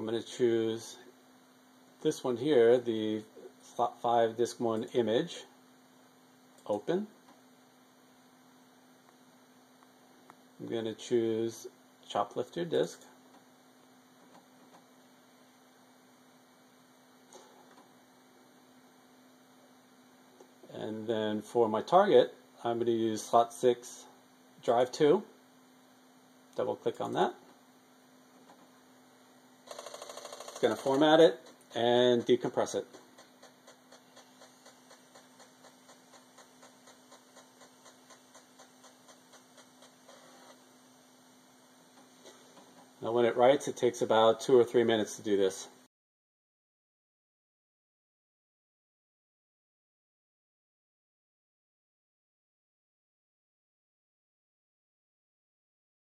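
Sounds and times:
faint electrical hum: 0.0s - 45.9s
floppy drive ticking: 29.7s - 40.6s.

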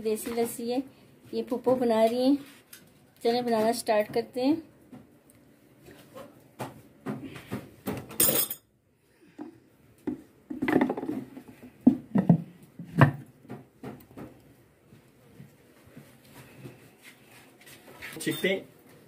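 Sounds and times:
wooden stick knocking and scraping clay: 10.0s - 14.4s.

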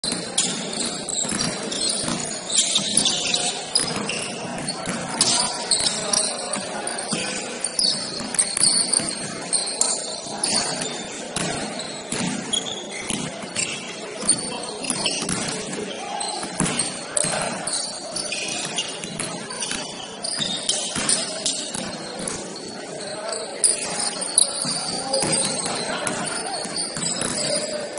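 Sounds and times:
shoes squeaking on court: 0.0s - 27.9s
voices of players and onlookers: 0.0s - 27.9s
basketball bouncing: 11.4s - 15.8s, 16.5s - 17.6s.

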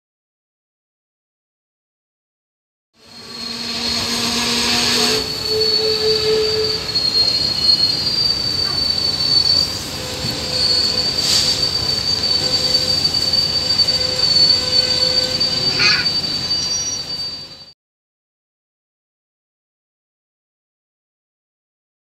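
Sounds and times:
train wheels squealing on rails: 3.0s - 17.8s
train coach rumble: 3.1s - 17.7s.

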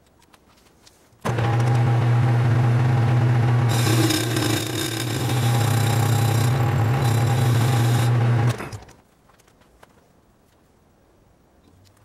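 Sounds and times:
lathe cutting metal: 1.3s - 8.8s
lathe motor hum: 1.3s - 8.9s.

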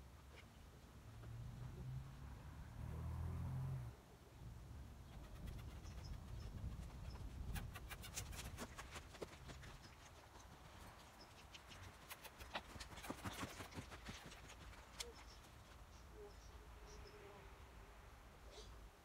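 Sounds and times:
hoofbeats in sand: 5.2s - 16.1s.

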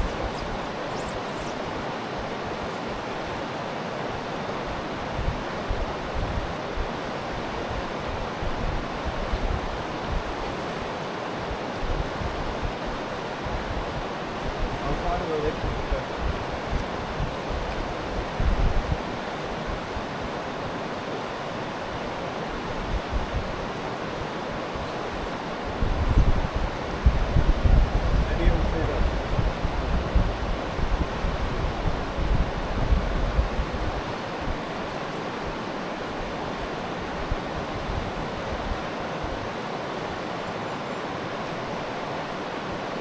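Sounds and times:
river rushing over stones: 0.0s - 43.0s
wind buffeting microphone: 4.7s - 20.3s, 22.6s - 23.7s, 24.7s - 34.8s.

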